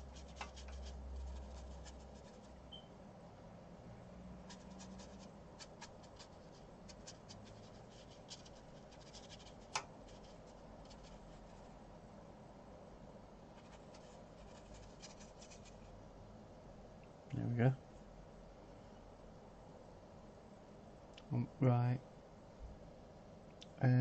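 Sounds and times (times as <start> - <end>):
paintbrush scratching and ticking: 0.0 - 2.6, 4.4 - 11.7, 13.6 - 15.9.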